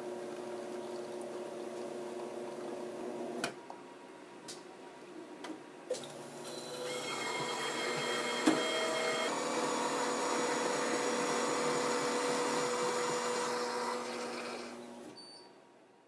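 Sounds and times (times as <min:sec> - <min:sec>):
espresso machine frothing milk: 0:06.2 - 0:15.0.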